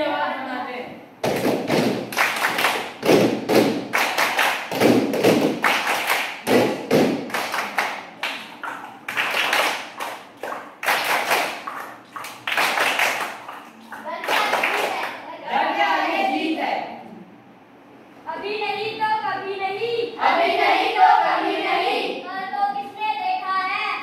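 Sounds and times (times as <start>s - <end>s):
children clapping a rhythm: 1.2s - 15.3s.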